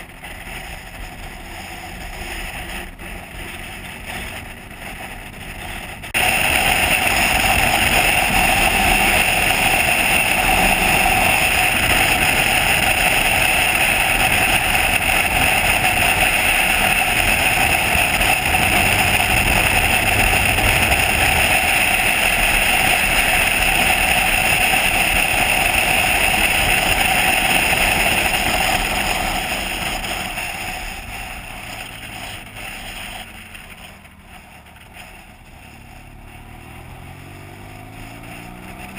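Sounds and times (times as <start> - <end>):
motorcycle engine: 0.0 - 38.9
wind rushing: 16.3 - 23.3.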